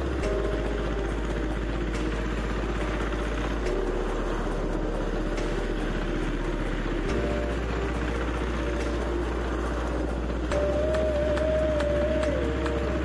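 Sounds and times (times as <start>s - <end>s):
power tiller engine running: 0.0s - 13.0s.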